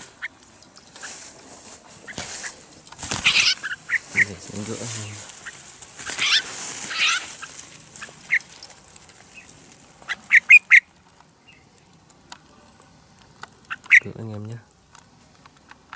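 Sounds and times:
bird harsh alarm calls: 0.0 - 0.4, 2.0 - 8.6, 9.3 - 11.7, 13.7 - 14.2
rustling of leaves and wire trap: 0.0 - 15.9.

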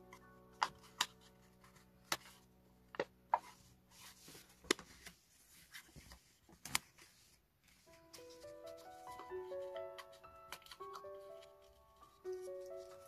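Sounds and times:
background music of held notes: 0.0 - 4.4, 7.8 - 13.0
paper rustling and crackling: 3.4 - 13.0.

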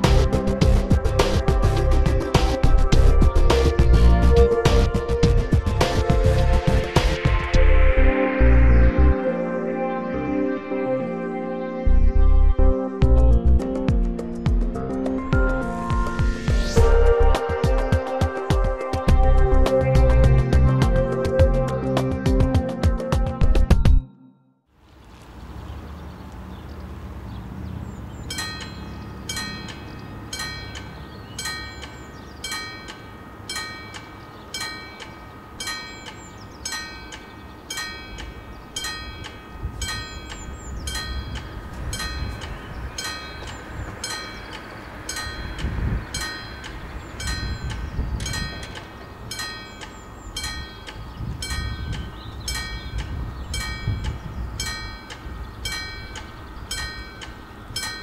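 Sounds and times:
low engine rumble: 16.8 - 17.9
level crossing bells ringing: 28.2 - 58.0.

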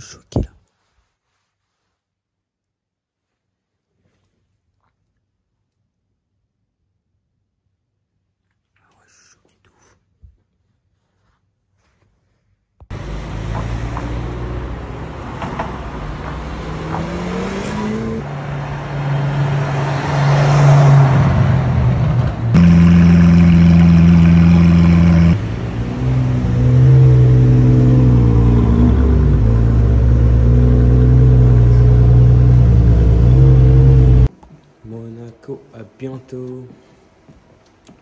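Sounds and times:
car engine revving: 12.9 - 34.3
car engine loud idle: 22.6 - 25.4.

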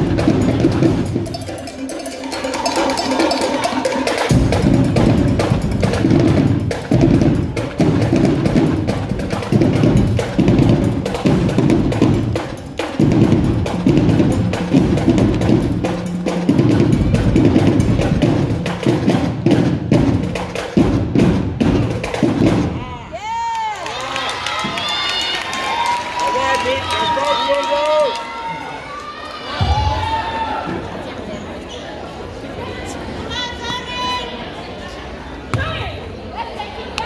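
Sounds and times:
marching drumline cadence: 0.0 - 23.3.

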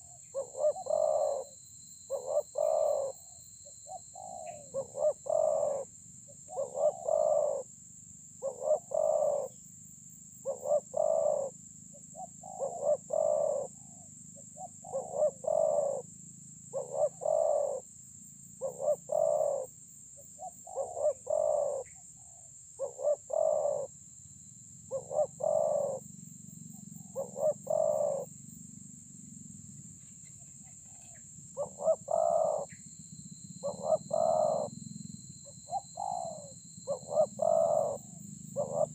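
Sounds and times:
dove cooing: 0.0 - 3.3, 3.9 - 7.7, 8.4 - 9.6, 10.4 - 16.1, 16.7 - 17.9, 18.6 - 19.7, 20.4 - 23.9, 24.9 - 26.0, 26.8 - 28.3, 30.4 - 32.8, 33.5 - 34.8, 35.4 - 38.9.

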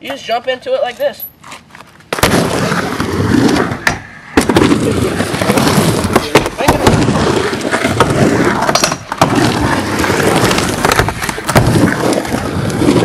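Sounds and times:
skateboard wheels rumbling on ramp: 2.2 - 13.0
skateboard clacking: 3.5 - 13.0.

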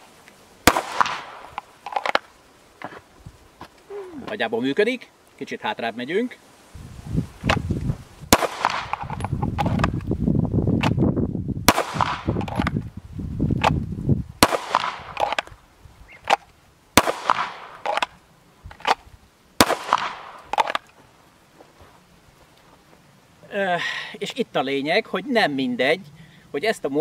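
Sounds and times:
airsoft pistol shots: 0.7 - 1.6, 8.3 - 9.2, 11.7 - 12.7, 14.4 - 15.4, 17.0 - 18.1, 19.6 - 20.8
wind rumbling on microphone: 3.1 - 4.4, 6.6 - 16.4.

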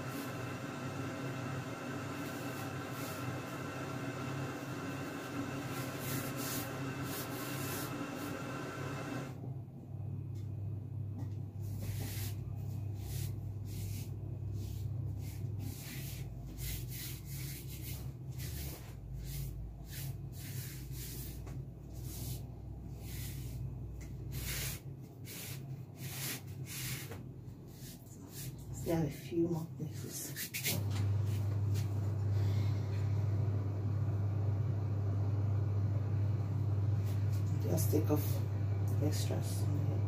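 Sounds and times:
steady low hum: 0.0 - 40.0
hands brushing icing: 5.6 - 8.4, 11.7 - 28.7.

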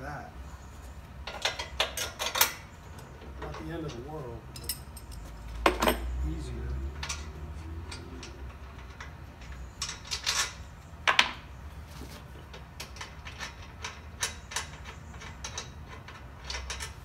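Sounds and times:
metal clicks and clinks of tools: 4.6 - 6.1, 6.8 - 10.6.

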